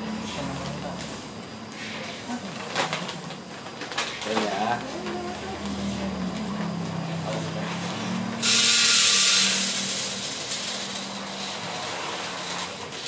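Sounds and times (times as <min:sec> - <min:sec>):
steady low hum: 0:00.0 - 0:08.4
coffee beans rattling into hopper: 0:03.9 - 0:04.8, 0:08.4 - 0:13.0.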